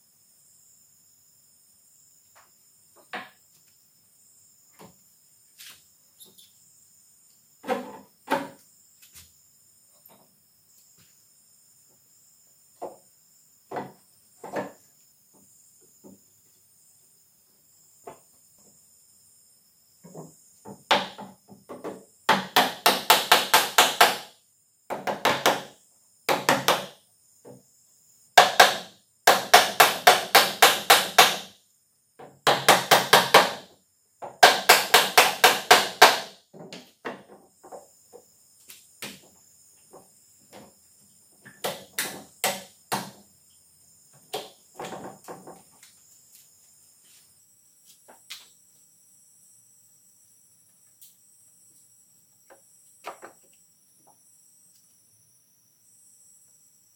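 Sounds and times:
mallet knocking on wood: 0:28.4 - 0:31.5.

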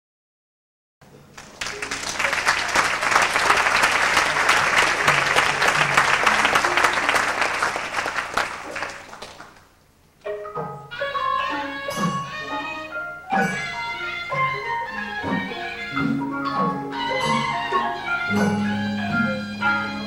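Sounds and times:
audience applauding: 0:01.2 - 0:09.8
traditional ensemble playing: 0:01.4 - 0:09.6, 0:10.2 - 0:20.0.

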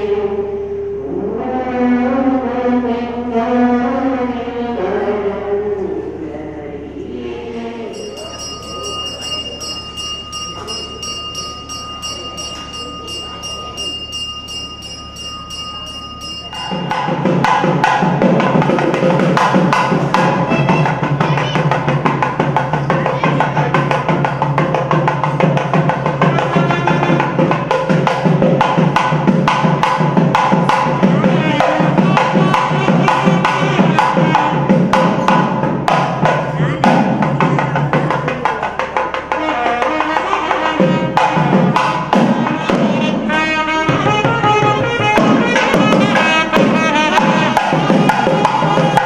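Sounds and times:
bell ringing: 0:07.9 - 0:22.0
rapid drumming: 0:15.8 - 0:49.0.

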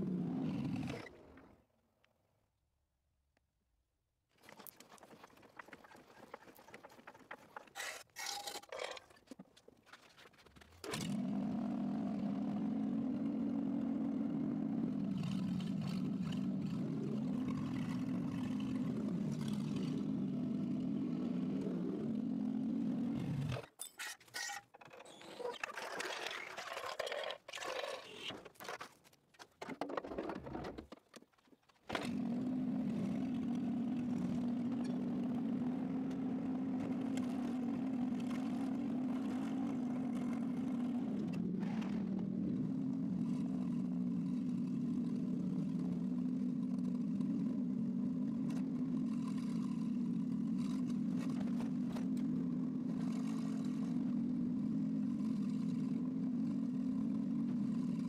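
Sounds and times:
irregular clinks and scrapes: 0:04.4 - 0:11.0, 0:23.6 - 0:31.8.

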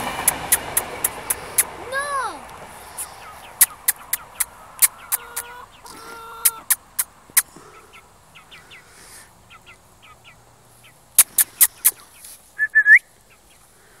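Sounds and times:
sharp clicks: 0:00.2 - 0:01.7, 0:03.6 - 0:05.5, 0:06.4 - 0:07.5, 0:11.2 - 0:12.0
chick chirping: 0:02.9 - 0:13.7
chicken rising squeal: 0:03.0 - 0:06.8.

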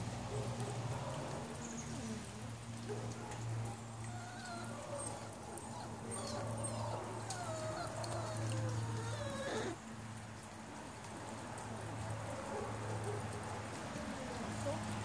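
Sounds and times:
puppy whining: 0:04.0 - 0:09.8.

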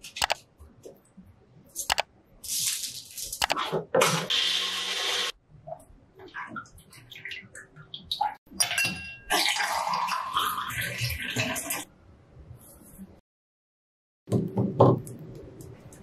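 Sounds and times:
juice pouring into a glass: 0:09.3 - 0:11.0.

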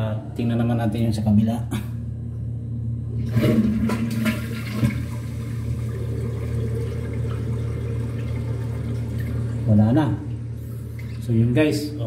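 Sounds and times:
toilet flushing: 0:03.2 - 0:12.0.

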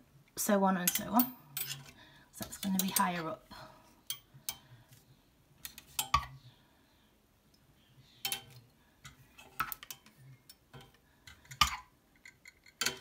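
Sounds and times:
metal hanger hooks clicking: 0:00.8 - 0:03.2, 0:08.2 - 0:08.6.

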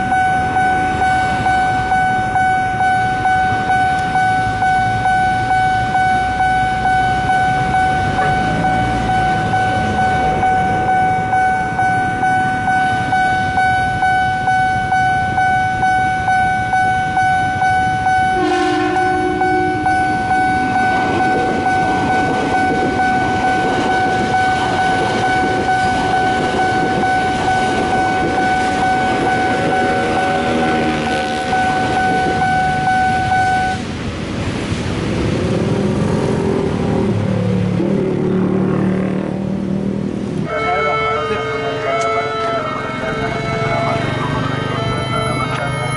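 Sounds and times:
level crossing bell dinging: 0:00.0 - 0:30.6, 0:40.5 - 0:45.9
train horn blast: 0:18.0 - 0:33.4, 0:40.4 - 0:45.6
train wheels rushing on rails: 0:18.3 - 0:38.0.

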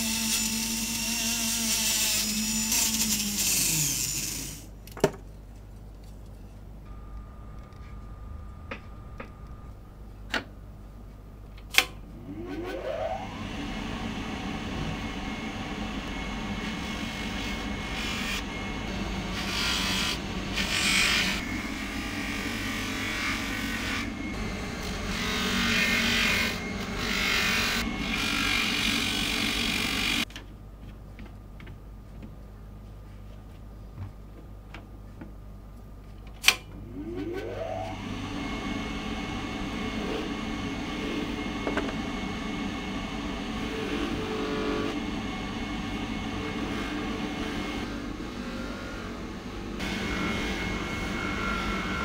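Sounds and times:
rotary tool whining: 0:00.0 - 0:04.7, 0:12.2 - 0:30.3, 0:36.9 - 0:52.0.

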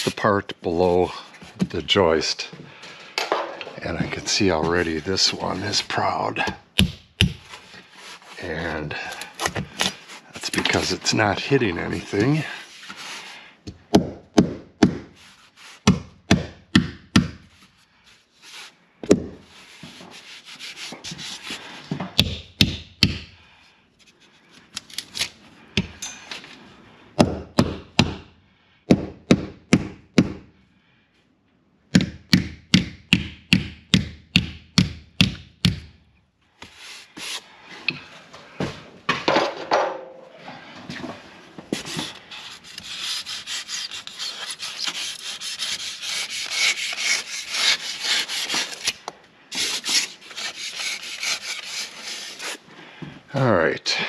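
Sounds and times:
knife scraping dried foam: 0:07.4 - 0:13.4, 0:15.2 - 0:15.9, 0:19.5 - 0:21.8, 0:36.6 - 0:37.6, 0:41.7 - 0:52.6.

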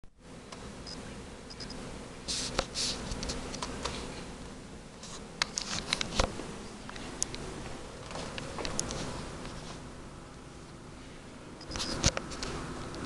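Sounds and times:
steady low hum: 0:00.0 - 0:13.0
camera handling rustles: 0:05.0 - 0:06.3, 0:11.7 - 0:12.5
sharp clicks: 0:08.0 - 0:09.0.

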